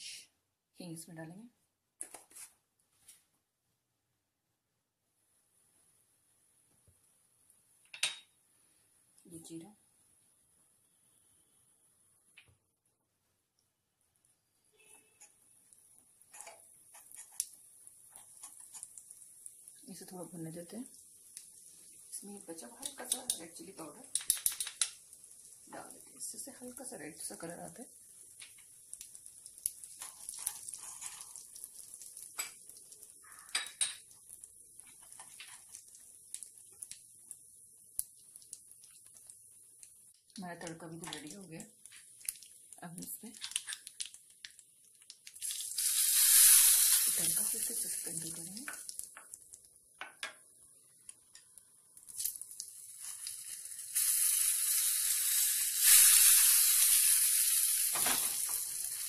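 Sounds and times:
oil sizzling faintly: 13.2s - 59.0s.

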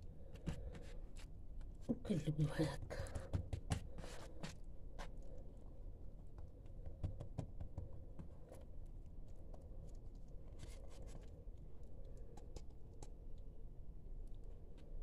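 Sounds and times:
low steady hum: 0.0s - 15.0s
hands tapping dough on countertop: 2.9s - 4.0s, 6.3s - 8.3s.

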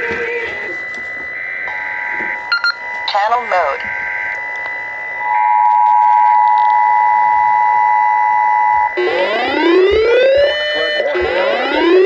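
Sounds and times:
rising siren-like wail: 0.0s - 12.0s
two-tone alert signal: 0.0s - 12.0s.

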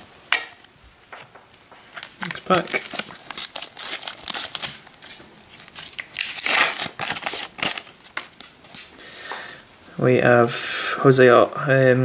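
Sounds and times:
foil wrapper tearing and crinkling: 1.9s - 8.9s.

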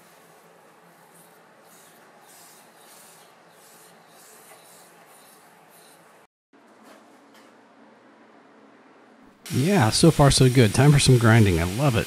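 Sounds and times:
hot blade sizzling in oil: 9.5s - 12.0s.

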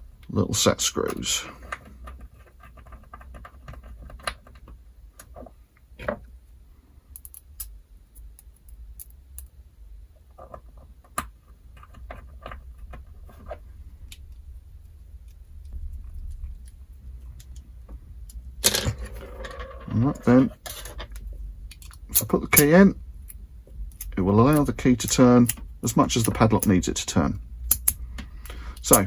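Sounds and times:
small metallic clicks and taps: 27.7s - 29.0s.

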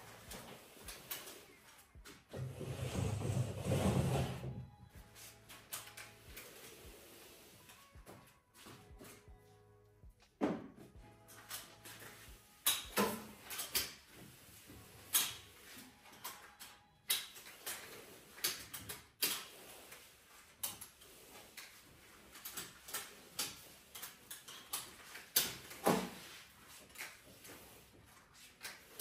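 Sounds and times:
mop clacking on hard floor: 20.6s - 27.6s.

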